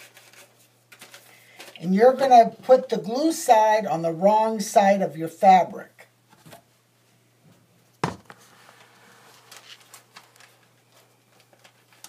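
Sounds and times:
paper and fabric rustling: 0:00.0 - 0:01.8, 0:08.3 - 0:12.0.

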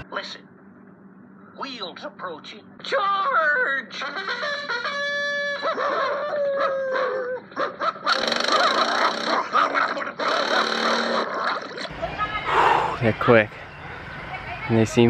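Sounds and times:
dog howling: 0:05.4 - 0:11.6.

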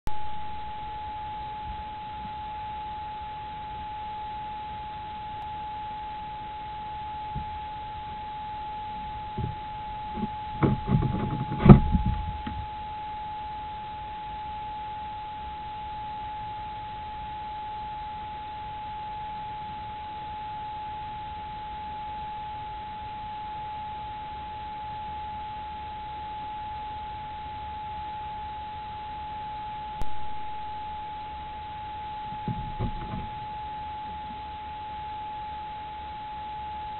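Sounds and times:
high-pitched electronic whine: 0:00.1 - 0:36.9
bumps and knocks: 0:09.4 - 0:12.7, 0:32.3 - 0:33.5
sharp knock: 0:10.6 - 0:12.6.

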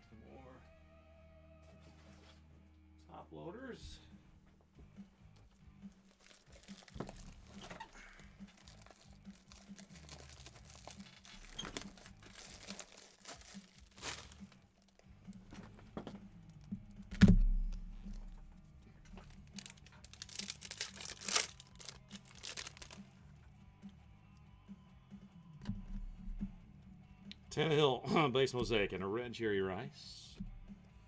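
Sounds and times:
foil wrappers crinkling and tearing: 0:06.0 - 0:15.1, 0:19.2 - 0:23.0
cards and plastic sleeves handled: 0:06.0 - 0:23.1
loud thump: 0:17.1 - 0:17.9.

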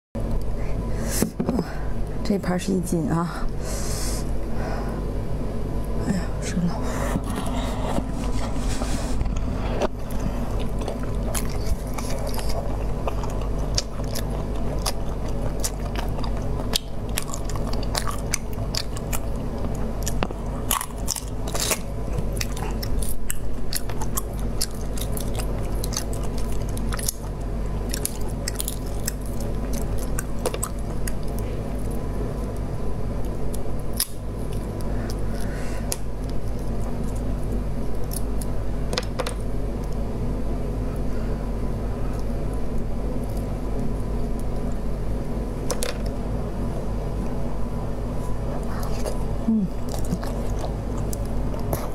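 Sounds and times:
steady low hum: 0:00.2 - 0:51.9
person biting and chewing: 0:09.3 - 0:32.6, 0:48.6 - 0:51.9.

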